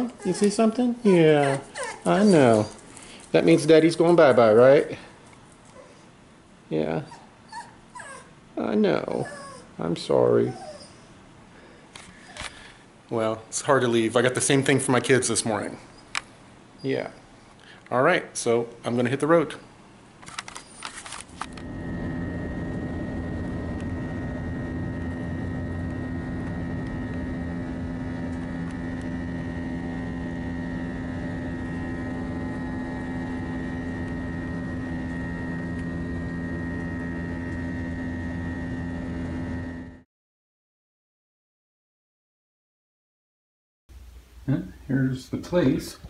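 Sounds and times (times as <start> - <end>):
airliner cabin engine drone: 20.4 - 40.0.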